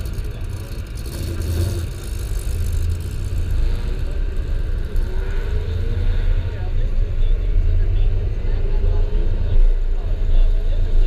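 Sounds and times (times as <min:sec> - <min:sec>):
car engine idling: 0:00.0 - 0:07.6.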